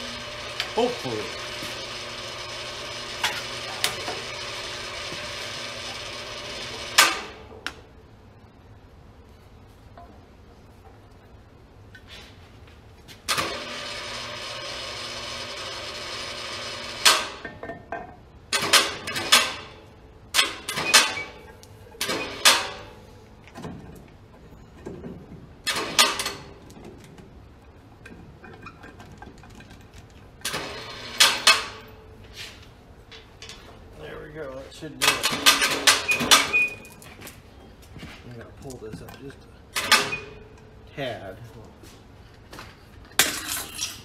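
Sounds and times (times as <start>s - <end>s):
mechanical whirring hum: 0.0s - 11.9s, 12.8s - 17.6s
metal clanks and knocks: 17.1s - 19.7s, 20.4s - 27.2s, 27.9s - 32.0s, 35.0s - 37.3s.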